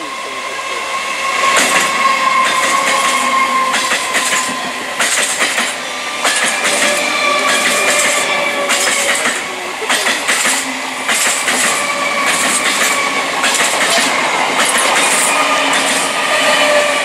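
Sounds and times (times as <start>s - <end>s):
train whine: 0.0s - 17.0s
train wheels clacking over rail joints: 1.3s - 17.0s.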